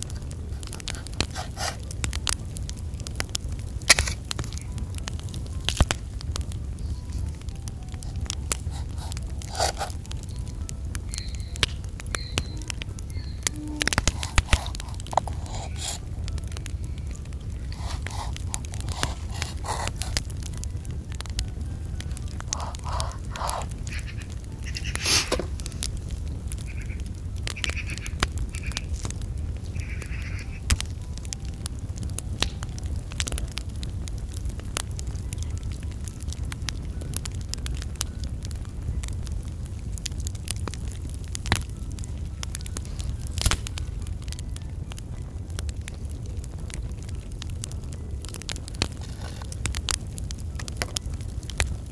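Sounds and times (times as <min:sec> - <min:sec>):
crackling clicks: 0:00.0 - 0:51.9
steady low rumble: 0:00.0 - 0:51.9.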